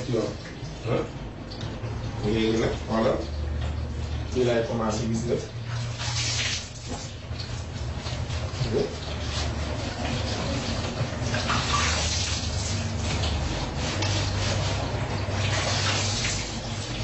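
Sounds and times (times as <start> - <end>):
water running and splashing: 0.0 - 17.0.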